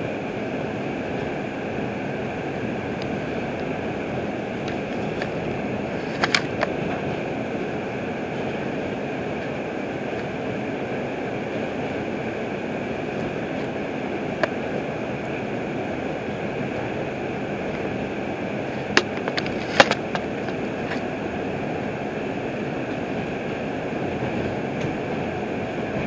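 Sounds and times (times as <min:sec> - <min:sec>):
train wheels rumbling on rail: 0:00.0 - 0:26.0
clanks: 0:18.8 - 0:21.0.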